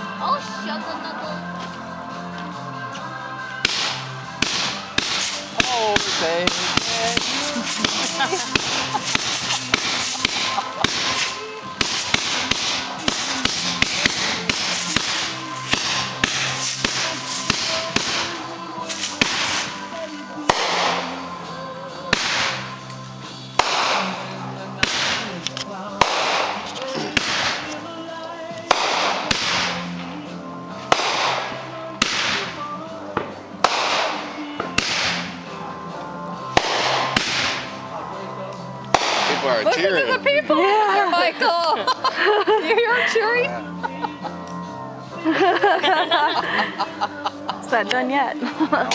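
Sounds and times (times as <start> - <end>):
music playing: 0.0 - 48.9
fireworks bursting: 3.6 - 27.9, 28.6 - 30.2, 30.8 - 35.4, 36.5 - 37.9, 38.9 - 39.9.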